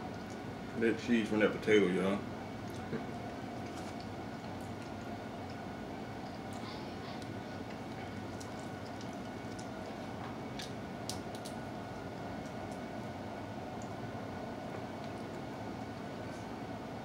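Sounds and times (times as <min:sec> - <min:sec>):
air conditioner hum: 0:00.0 - 0:17.0
people chewing: 0:02.6 - 0:11.6.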